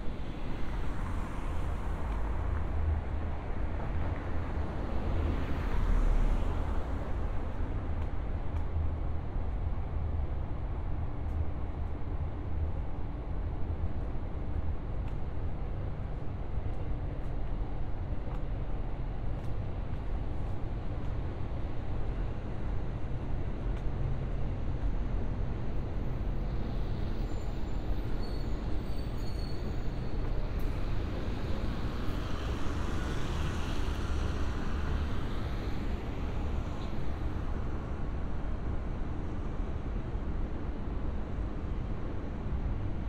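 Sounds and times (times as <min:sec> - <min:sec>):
city traffic rumble: 0:00.0 - 0:43.0
bus driving past: 0:25.7 - 0:38.3.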